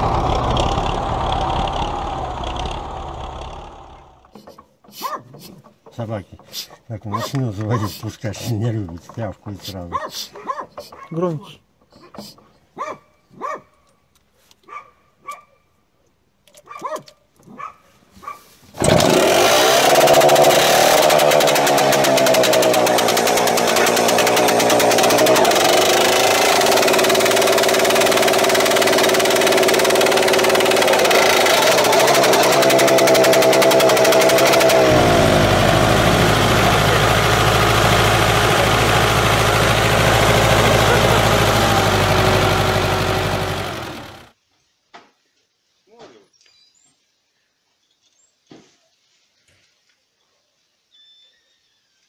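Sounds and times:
diesel engine low drone: 0.0s - 4.3s, 18.9s - 44.3s
small petrol engine revving: 0.0s - 4.5s, 18.8s - 44.4s
dog yapping: 5.0s - 5.5s, 9.9s - 11.2s, 12.8s - 13.8s, 14.6s - 15.6s, 16.6s - 18.5s.

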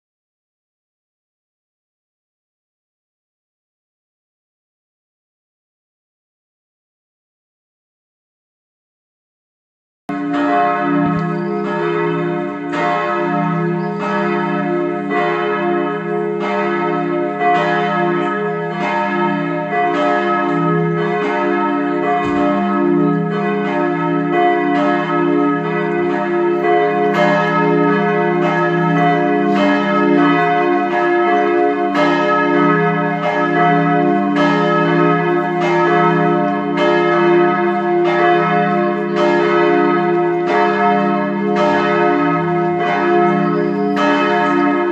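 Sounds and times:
church bells ringing: 10.1s - 44.9s.

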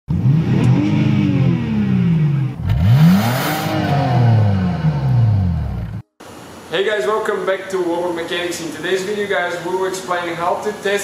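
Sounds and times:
car engine revving: 0.1s - 6.0s.

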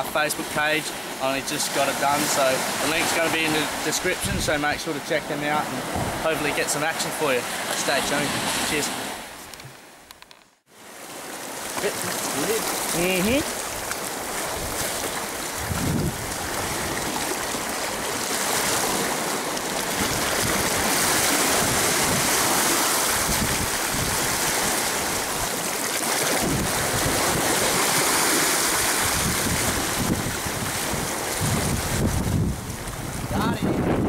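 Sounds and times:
sea surf against rocks: 0.0s - 34.0s
wind buffeting microphone: 4.1s - 4.8s, 5.8s - 6.3s, 13.3s - 19.2s, 19.8s - 25.6s, 26.2s - 34.0s.

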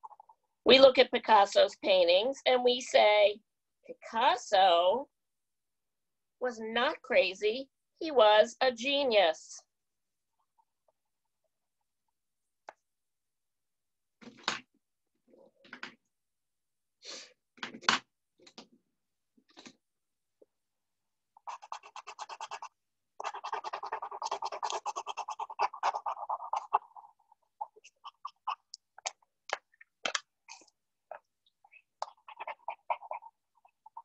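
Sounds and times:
scribbling on paper: 21.4s - 29.2s.

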